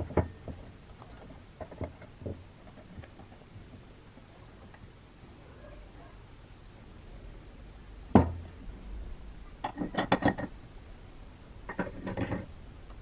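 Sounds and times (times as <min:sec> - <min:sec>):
knock: 0:08.2 - 0:08.4.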